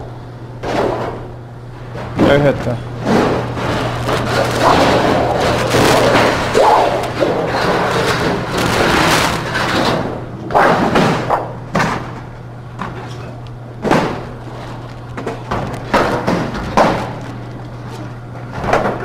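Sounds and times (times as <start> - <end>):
sheet metal scraping: 3.1 - 10.1.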